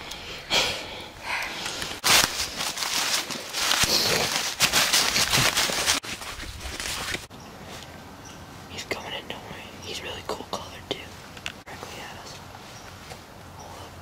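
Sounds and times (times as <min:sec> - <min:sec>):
footsteps in dry leaves: 0:02.0 - 0:07.8.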